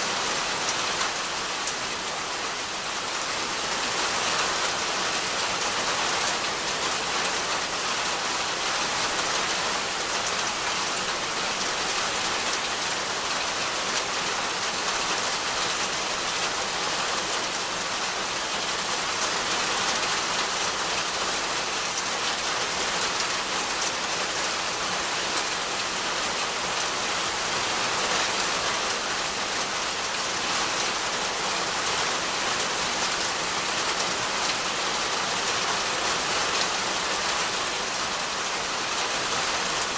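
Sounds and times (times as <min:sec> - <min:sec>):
rain falling on leaves: 0:00.0 - 0:39.9.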